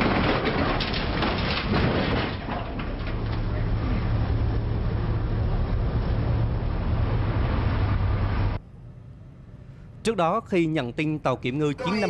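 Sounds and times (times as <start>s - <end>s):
ship engines humming: 2.8s - 10.0s.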